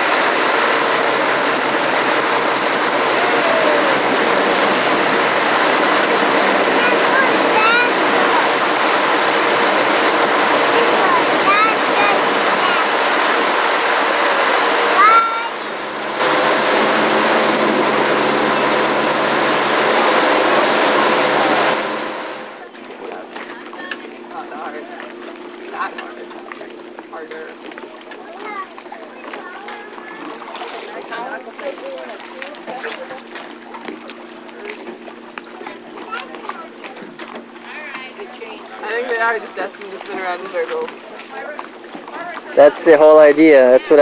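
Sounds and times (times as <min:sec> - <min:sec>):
water spraying and hissing: 0:00.0 - 0:22.5
motorboat engine running: 0:00.0 - 0:44.0.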